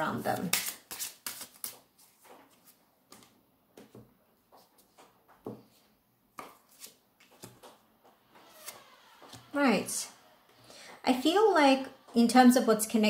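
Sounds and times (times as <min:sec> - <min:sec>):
cards flicking and tapping: 0:00.4 - 0:01.9, 0:06.4 - 0:07.8.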